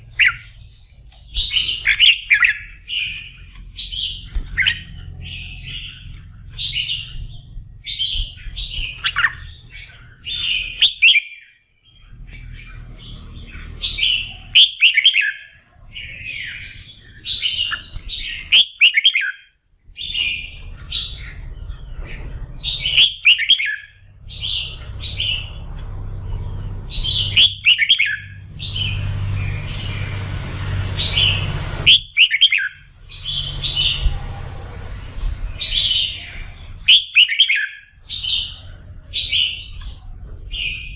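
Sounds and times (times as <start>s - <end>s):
low hum: 0.0s - 10.8s, 11.8s - 14.7s, 19.8s - 37.0s
bird singing warbled phrases: 0.0s - 40.9s.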